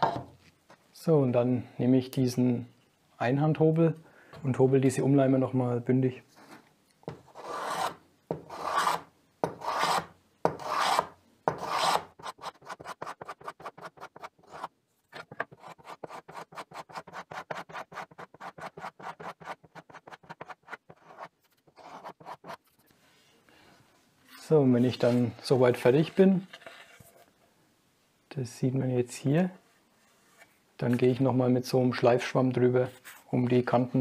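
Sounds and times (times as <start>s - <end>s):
block plane shaving wood: 7.4s - 7.9s, 8.5s - 9.0s, 10.6s - 14.7s.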